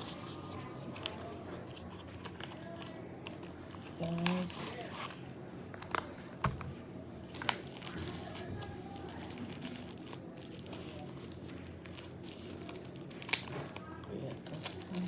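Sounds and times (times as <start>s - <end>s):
plastic packaging crinkling: 7.2s - 15.0s.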